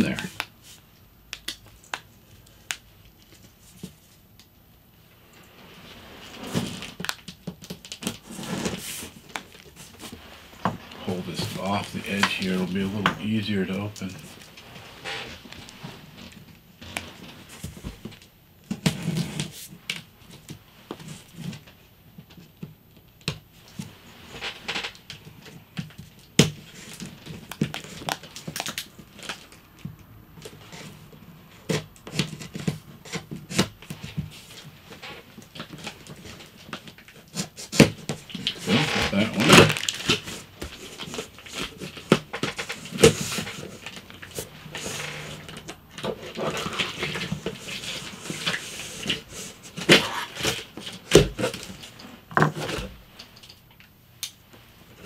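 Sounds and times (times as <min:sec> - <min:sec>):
cardboard and tape rustling: 0:06.1 - 0:21.7, 0:23.7 - 0:29.6, 0:31.6 - 0:53.5.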